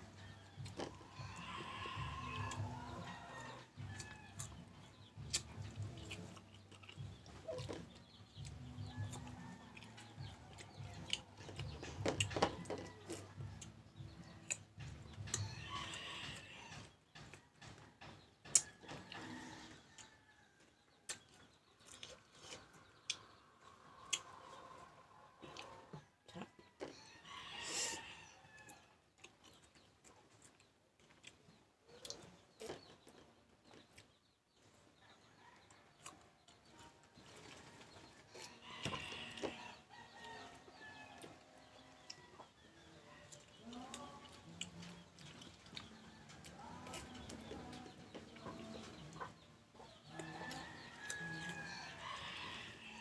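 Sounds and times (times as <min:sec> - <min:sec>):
chickens clucking: 0:00.0 - 0:20.2, 0:21.1 - 0:28.2, 0:29.2 - 0:53.0
crunching and chewing mango: 0:00.2 - 0:16.4, 0:21.1 - 0:23.3, 0:28.6 - 0:34.2, 0:43.2 - 0:49.4.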